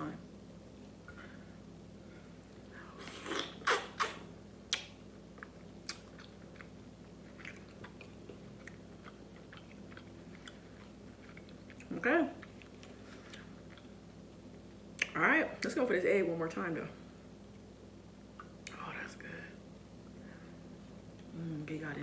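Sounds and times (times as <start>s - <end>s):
wet bites and lip smacks: 3.2s - 13.9s
chewing with mouth clicks: 3.2s - 15.2s.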